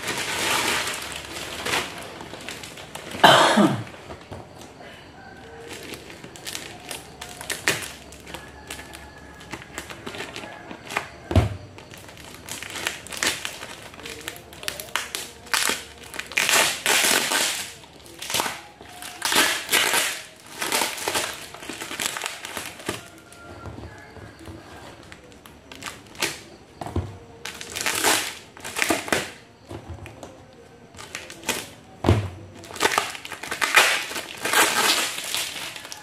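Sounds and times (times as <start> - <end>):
plastic crinkling and ripping: 0.0 - 4.7, 5.4 - 26.8, 27.4 - 36.0.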